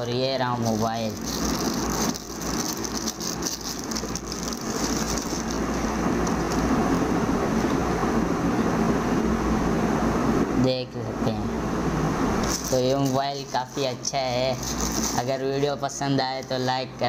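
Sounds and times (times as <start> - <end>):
plastic wrapping crinkling: 0.5 - 6.9, 12.4 - 16.8.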